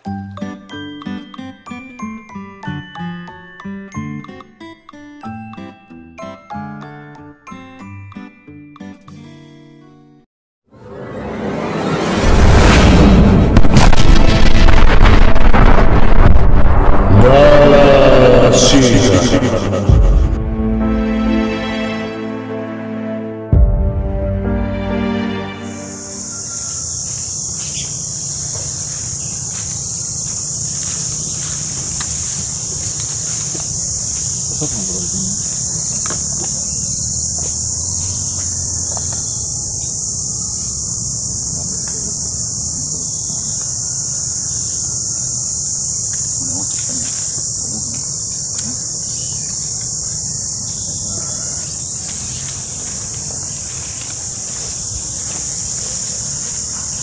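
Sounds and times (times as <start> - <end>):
high-pitched insect chorus: 17.2 - 20.3, 24.9 - 57.0.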